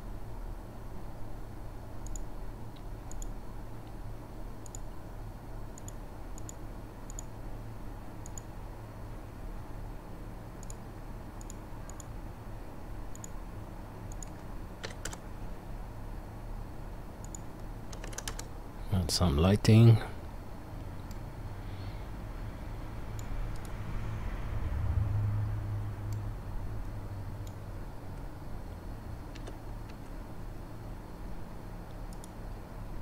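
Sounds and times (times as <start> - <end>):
steady low hum: 0.0 - 33.0
mouse and keyboard clicks: 17.2 - 18.5.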